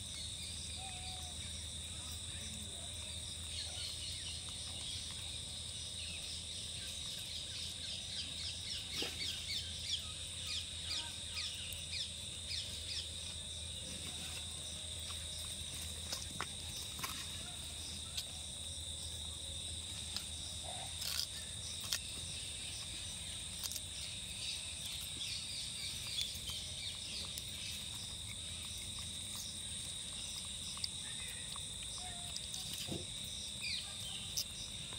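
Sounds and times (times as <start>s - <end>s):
high-pitched insect chirring: 20.1s - 34.9s.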